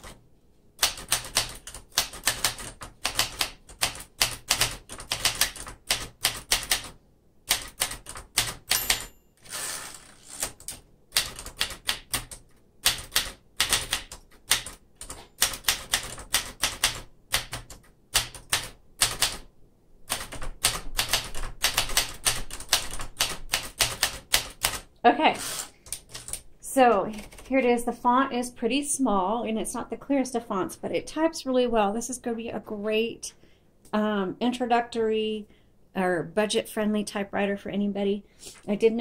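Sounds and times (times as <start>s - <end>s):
typewriter keys striking: 0.8s - 6.9s, 7.5s - 9.1s, 10.4s - 19.4s, 20.1s - 24.8s
typewriter carriage rasping slide: 9.4s - 10.6s.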